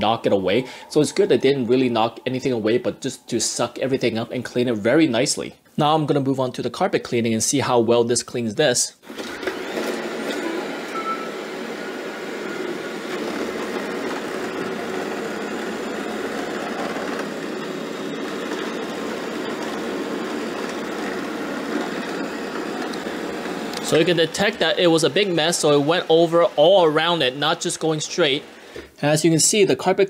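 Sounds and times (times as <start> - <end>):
robot vacuum running: 9.1 - 28.9.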